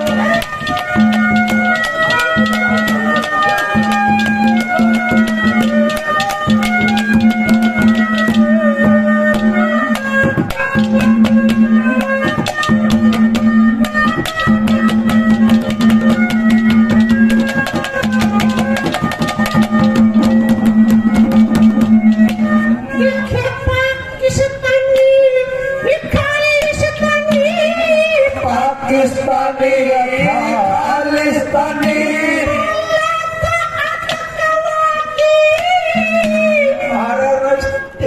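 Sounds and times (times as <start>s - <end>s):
quick drum beats: 0.0s - 22.7s
man singing: 28.4s - 32.9s.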